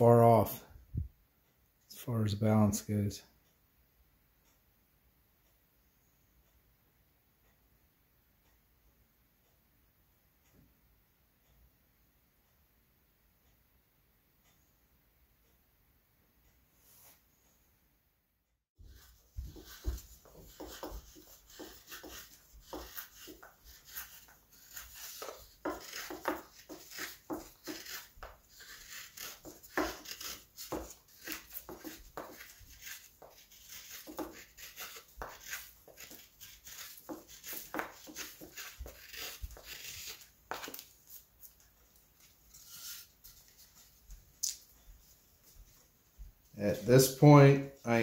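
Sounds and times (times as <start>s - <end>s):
knife scraping wood: 18.8s - 44.0s.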